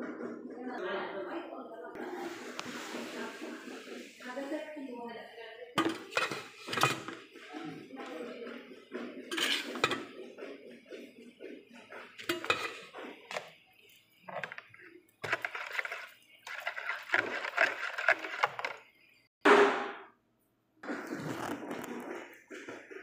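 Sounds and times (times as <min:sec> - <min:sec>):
whisk scraping a pan: 0:02.0 - 0:04.7, 0:05.8 - 0:07.4, 0:09.3 - 0:10.3, 0:12.0 - 0:13.6, 0:14.2 - 0:18.9.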